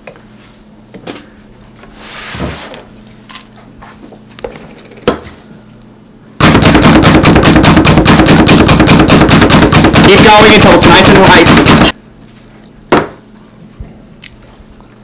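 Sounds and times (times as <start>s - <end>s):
food chopper clacking: 6.4s - 11.9s.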